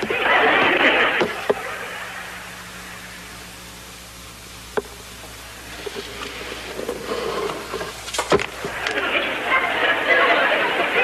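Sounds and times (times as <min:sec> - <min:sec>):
tape hiss: 0:00.0 - 0:11.0
egg rolling on tabletop: 0:04.8 - 0:09.7.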